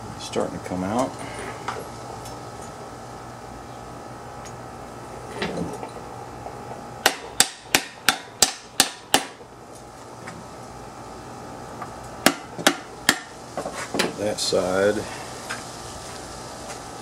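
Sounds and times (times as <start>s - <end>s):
hammer striking metal: 7.0s - 9.4s.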